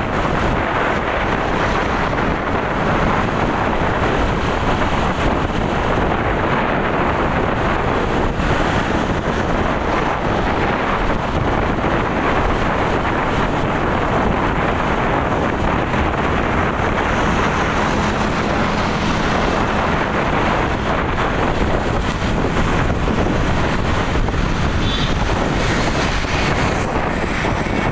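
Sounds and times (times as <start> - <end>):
road noise: 0.0 - 27.9
wind buffeting microphone: 0.0 - 27.9.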